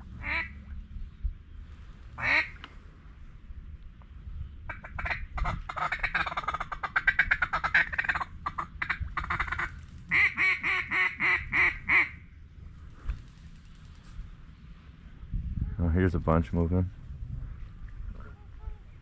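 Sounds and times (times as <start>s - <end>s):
duck call clucking: 0.2s - 0.5s, 2.2s - 2.6s, 4.7s - 12.2s
duck call quacks: 0.2s - 0.5s, 2.2s - 2.6s, 4.7s - 12.2s.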